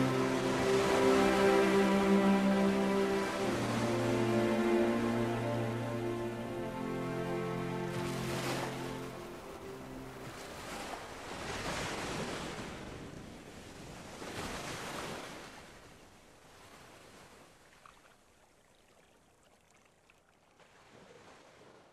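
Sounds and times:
ocean waves washing in: 0.0 - 17.4.

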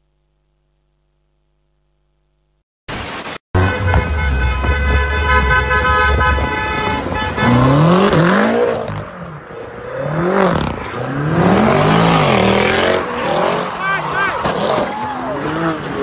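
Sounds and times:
car horn: 3.6 - 8.5
car engines revving: 3.8 - 16.0.

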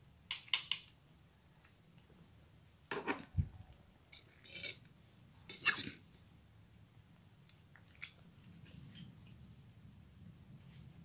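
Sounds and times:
metal bowl clinking and scraping: 4.1 - 6.0.

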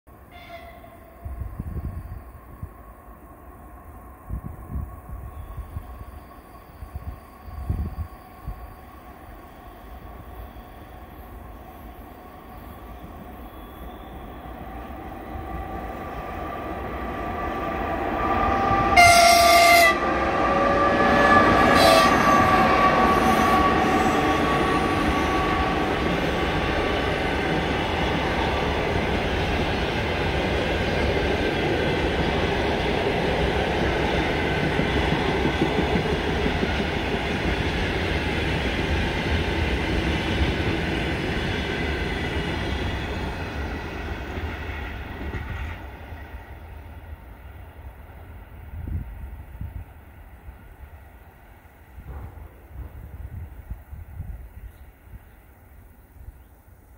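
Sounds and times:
electric locomotive passing: 0.1 - 56.9
train horn blast: 0.2 - 1.2, 18.2 - 25.9
train wheels clickety-clack: 21.2 - 46.5, 51.9 - 53.9.

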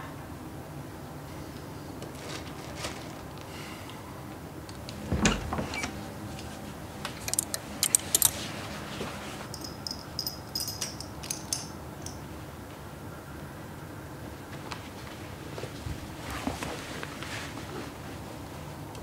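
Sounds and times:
metal belt buckle jingling: 7.2 - 8.4, 9.5 - 12.2.

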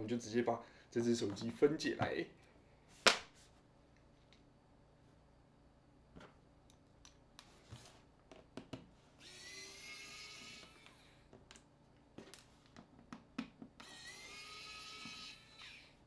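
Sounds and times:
electric screwdriver whirring: 9.2 - 11.2, 13.8 - 16.0.

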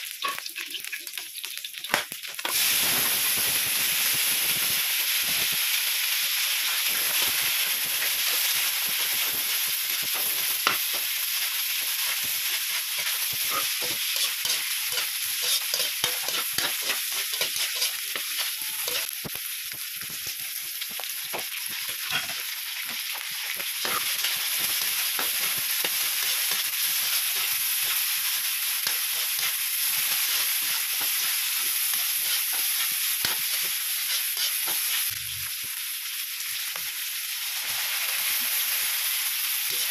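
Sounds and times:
chicken sizzling in hot oil: 0.0 - 39.9
metal spatula scraping pan: 13.0 - 19.1.

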